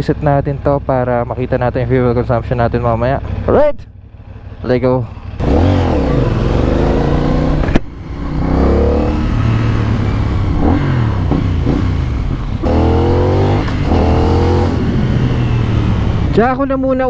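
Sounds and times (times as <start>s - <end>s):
motorcycle engine accelerating: 5.1s - 16.6s.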